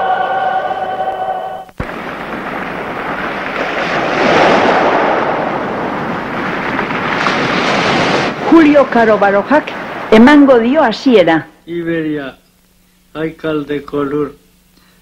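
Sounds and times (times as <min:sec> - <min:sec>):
choir singing: 0:00.0 - 0:01.7
sea surf breaking on rocks: 0:01.8 - 0:11.1.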